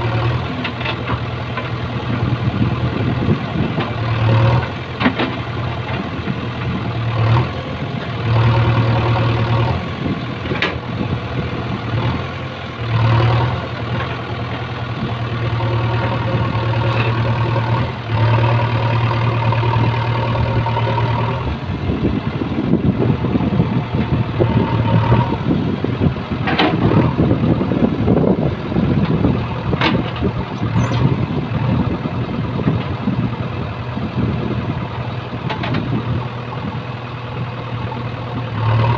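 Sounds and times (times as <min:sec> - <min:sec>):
diesel engine running under load: 0:00.0 - 0:38.9.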